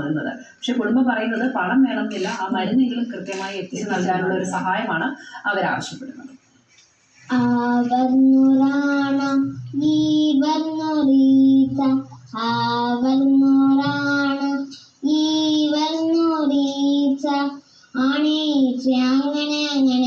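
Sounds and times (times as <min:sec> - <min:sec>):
child singing through television: 0:07.3 - 0:20.0.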